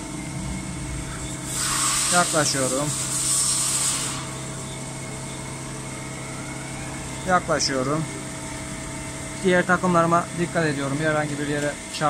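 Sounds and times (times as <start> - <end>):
lathe machine hum: 0.0 - 12.0
rushing hiss: 1.4 - 4.5.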